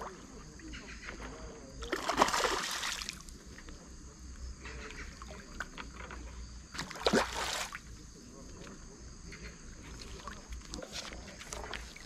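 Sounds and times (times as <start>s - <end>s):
water splashes: 0.0s - 3.6s, 6.7s - 8.0s.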